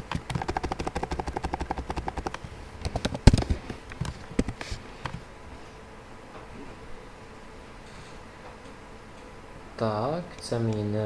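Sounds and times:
computer keyboard typing: 0:00.0 - 0:02.4.

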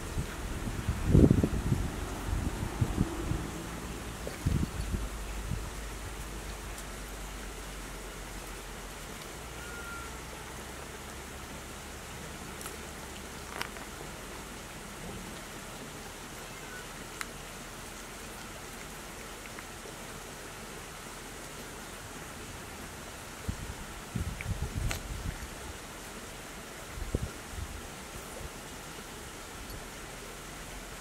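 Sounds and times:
steady outdoor hiss: 0:00.0 - 0:31.0
faint sharp clicks: 0:17.1 - 0:17.4.

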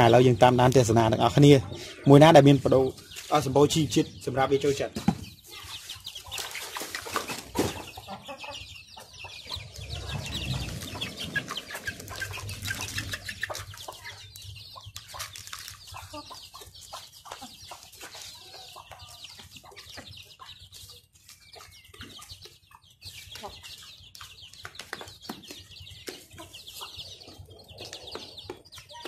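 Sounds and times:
young chickens clucking: 0:00.0 - 0:29.0
low rumble: 0:09.4 - 0:13.8.

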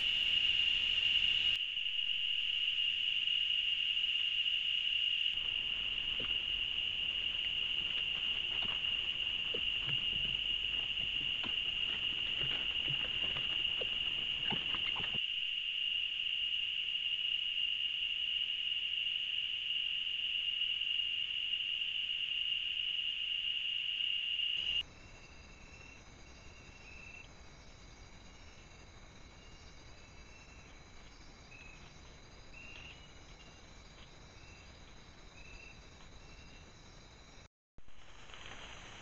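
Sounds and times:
rustles and ticks in leaf litter: 0:05.4 - 0:15.2, 0:37.9 - 0:39.0.

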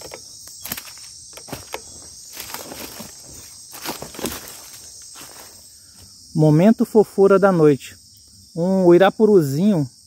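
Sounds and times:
footsteps crunching dry leaves: 0:00.0 - 0:06.2
night insects chorus: 0:00.0 - 0:10.0.

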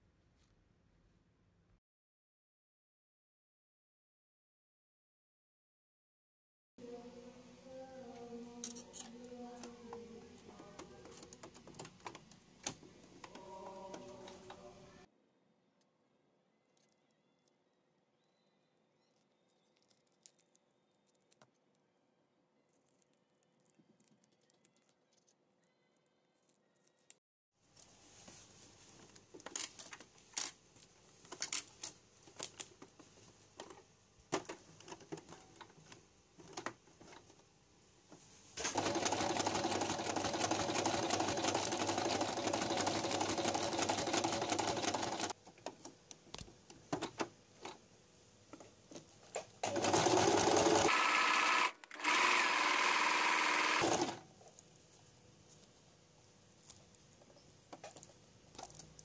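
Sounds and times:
sewing machine stitching: 0:38.6 - 0:45.4, 0:49.6 - 0:54.2.

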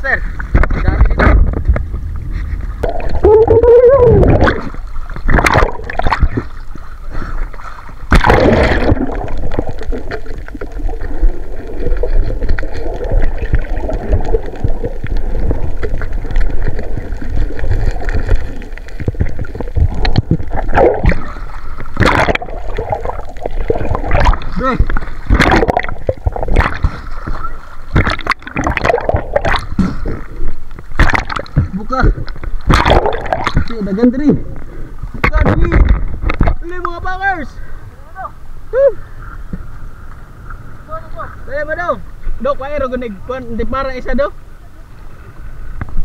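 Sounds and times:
water sloshing and gurgling: 0:00.0 - 0:37.9
sharp water splashes: 0:02.8 - 0:06.8, 0:07.4 - 0:31.9, 0:32.5 - 0:34.2.

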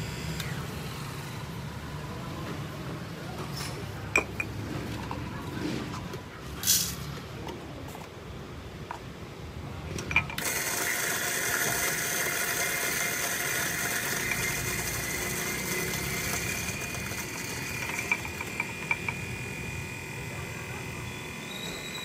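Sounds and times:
electric coffee grinder whining: 0:00.0 - 0:01.4, 0:10.2 - 0:22.0.

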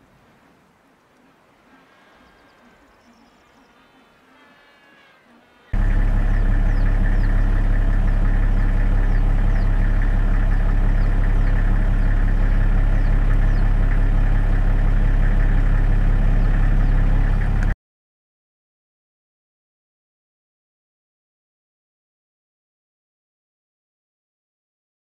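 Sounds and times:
low mechanical hum: 0:00.0 - 0:17.8.

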